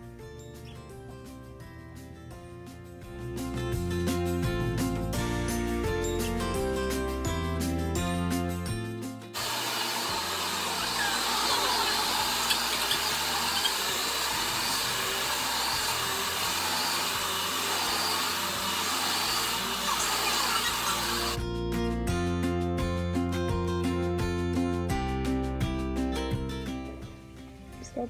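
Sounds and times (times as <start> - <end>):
background music: 0.0 - 28.0
vacuum cleaner running on carpet: 9.4 - 21.4.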